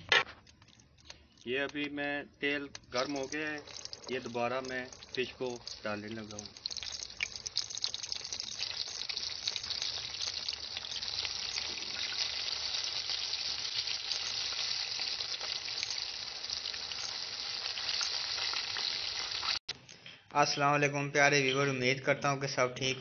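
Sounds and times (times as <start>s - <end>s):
fish deep-frying in hot oil: 2.9s - 19.7s.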